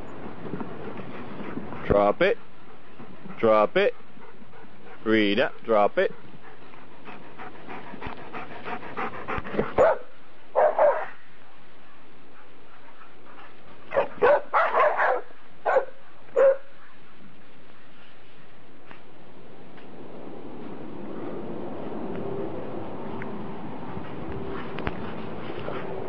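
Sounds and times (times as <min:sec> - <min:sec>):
dog panting: 0:00.2 - 0:10.0, 0:12.2 - 0:14.9, 0:23.7 - 0:26.0
dog barking: 0:09.8 - 0:11.1, 0:13.9 - 0:16.7.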